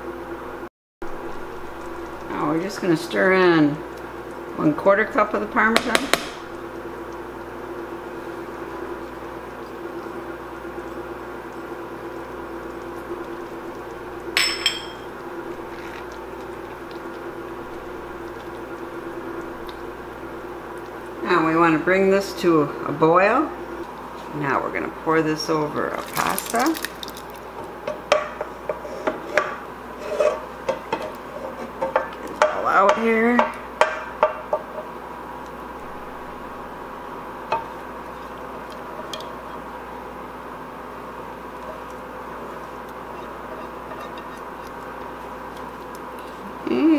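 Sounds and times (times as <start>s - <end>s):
steady hum: 0.0s - 46.9s
utensil clinking against skillet: 14.4s - 15.2s
spatula scraping sauce in skillet: 28.7s - 31.8s, 41.6s - 46.5s.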